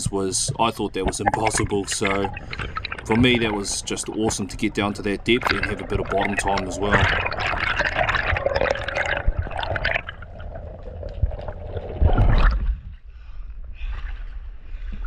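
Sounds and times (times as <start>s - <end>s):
water rushing underwater: 0.0s - 13.0s
water sounds at surface: 0.0s - 13.0s
loud splash: 1.2s - 10.1s.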